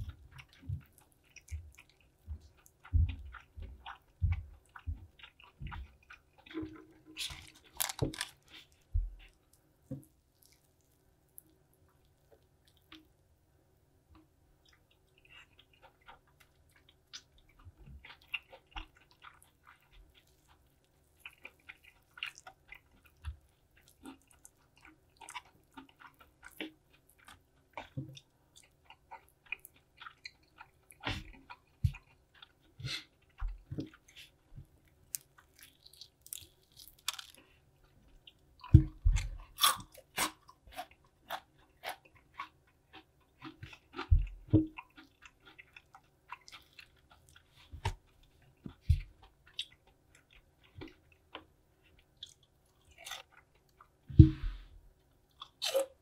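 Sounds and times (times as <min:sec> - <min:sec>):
fried chicken crunching: 0:00.4 - 0:09.4, 0:34.9 - 0:37.6, 0:38.3 - 0:44.1.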